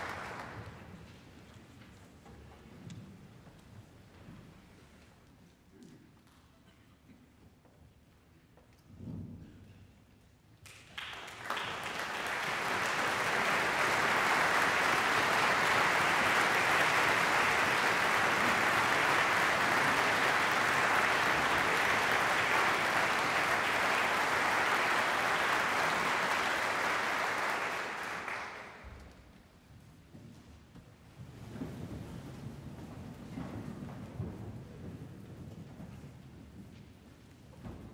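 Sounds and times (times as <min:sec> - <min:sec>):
audience applauding: 0:00.0 - 0:01.0, 0:10.7 - 0:29.1.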